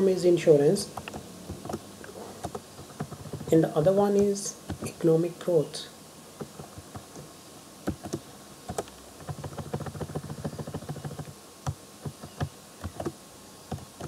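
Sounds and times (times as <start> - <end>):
keyboard key clicks: 7.9 - 13.9.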